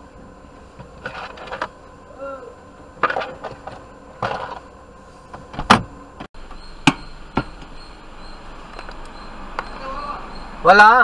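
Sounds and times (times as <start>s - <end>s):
knocks and thumps inside a car: 5.4s - 5.9s.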